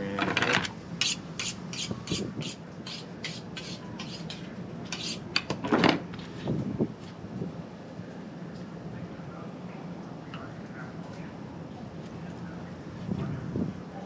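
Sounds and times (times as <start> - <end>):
knife scraping on honing steel: 1.0 - 5.5.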